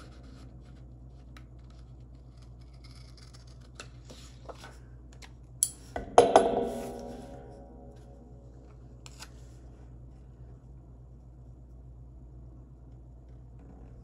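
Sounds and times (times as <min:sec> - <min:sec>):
scissors snipping paper: 0:00.0 - 0:04.1.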